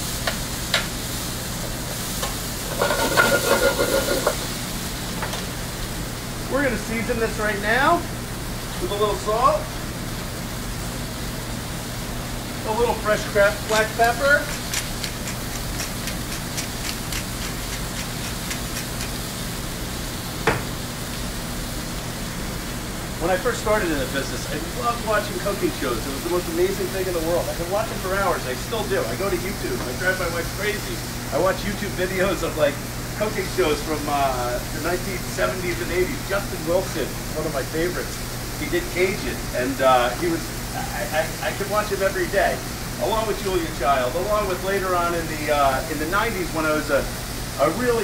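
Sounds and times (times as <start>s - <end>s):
vegetables sizzling in oil: 0.0s - 48.0s
pepper mill grinding: 2.6s - 4.4s, 13.5s - 19.4s
utensil scraping pan with ringing: 2.6s - 4.4s.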